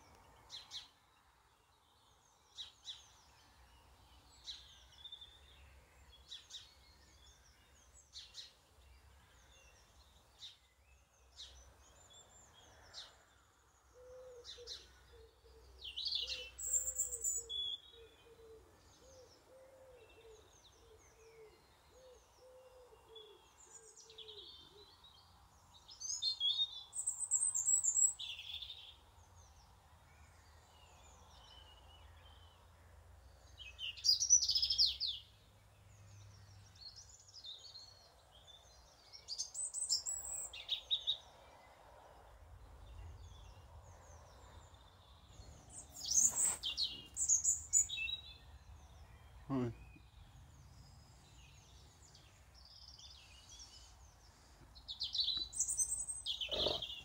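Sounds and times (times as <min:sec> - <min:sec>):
songbirds singing: 0:00.0 - 0:57.0
low cooing call: 0:56.3 - 0:57.0.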